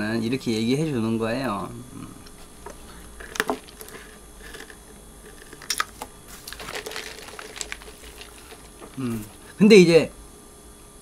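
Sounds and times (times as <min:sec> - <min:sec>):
paper packaging crinkling: 0:02.8 - 0:09.4.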